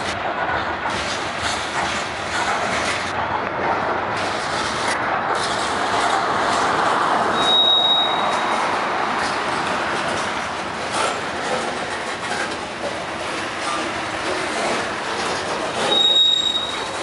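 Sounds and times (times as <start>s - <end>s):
freight train rolling past: 0.0s - 17.0s
high steady squeal: 7.4s - 8.7s, 15.8s - 17.0s.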